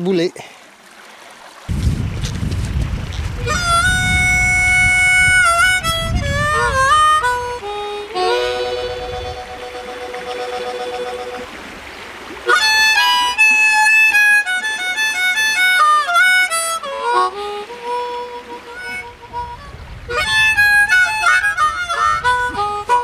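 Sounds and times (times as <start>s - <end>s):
harmonica playing: 3.4s - 11.8s, 12.4s - 23.0s.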